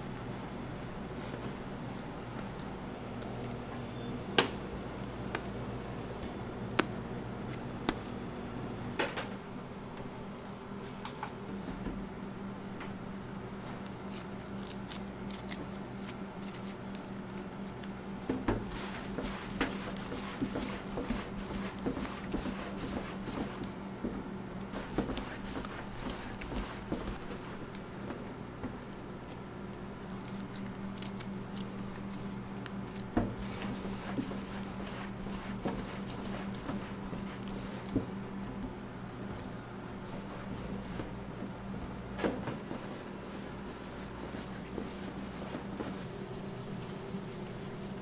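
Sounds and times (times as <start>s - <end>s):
dough squishing and slapping: 13.6s - 38.4s, 42.2s - 48.0s.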